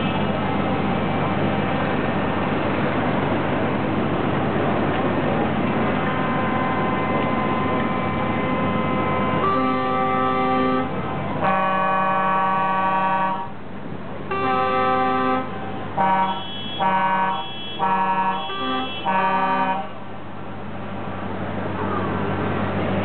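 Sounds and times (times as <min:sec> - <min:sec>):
truck air horn playing a tune: 0:06.1 - 0:13.5, 0:14.3 - 0:20.1.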